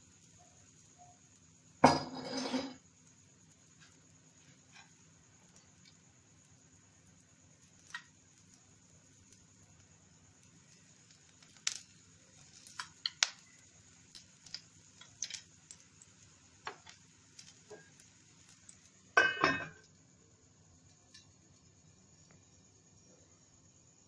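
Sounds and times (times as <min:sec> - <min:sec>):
metal lid clanging on pan: 0:19.2 - 0:19.8.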